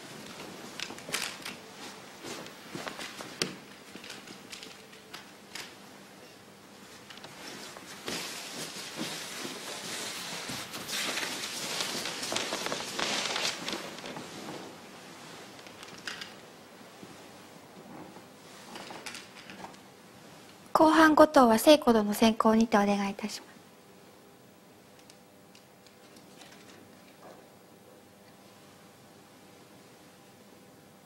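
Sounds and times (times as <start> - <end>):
silk rustling: 0.0 - 4.6, 6.8 - 19.0
feet sliding on carpet: 6.9 - 15.6.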